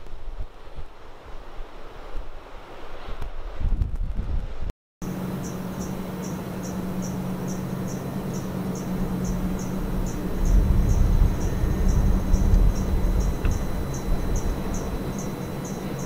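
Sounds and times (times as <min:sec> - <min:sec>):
low rumble: 0:05.0 - 0:16.0
steady low hum: 0:05.0 - 0:16.0
cricket chirping: 0:05.3 - 0:16.0.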